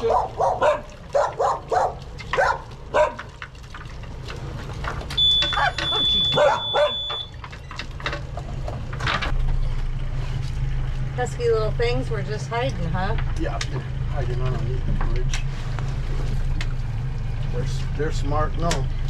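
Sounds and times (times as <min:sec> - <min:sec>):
dog barking: 0:00.0 - 0:03.4, 0:05.5 - 0:07.2
boat engine hum: 0:00.0 - 0:19.0
high electronic beep: 0:05.2 - 0:07.4.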